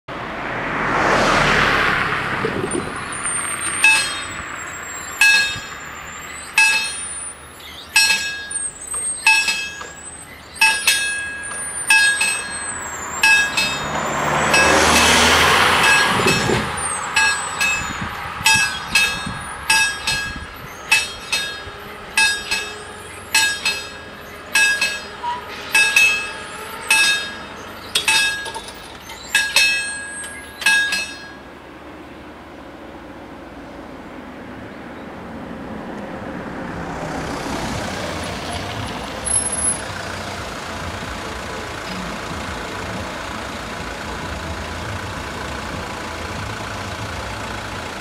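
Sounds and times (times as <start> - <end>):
road vehicle passing: 0.1 - 48.0
level crossing bells ringing: 2.7 - 31.5.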